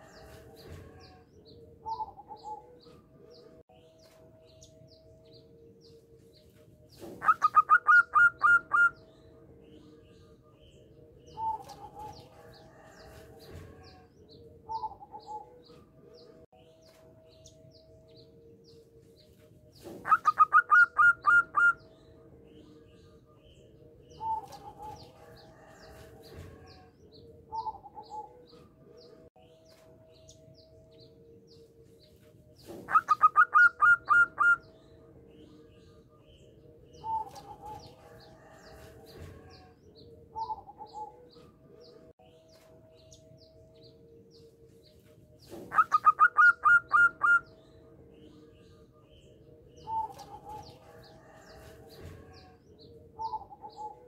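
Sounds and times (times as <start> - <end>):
dove cooing: 1.8 - 2.9, 7.0 - 9.0, 14.6 - 15.7, 19.9 - 21.8, 27.5 - 28.5, 32.7 - 34.7, 45.5 - 47.5, 53.2 - 54.0.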